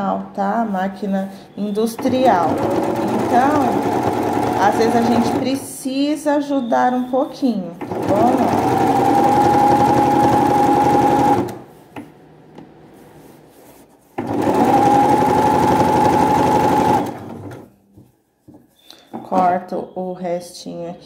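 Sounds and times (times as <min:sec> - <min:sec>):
sewing machine stitching: 0:01.9 - 0:05.6, 0:07.8 - 0:11.7, 0:14.2 - 0:17.7.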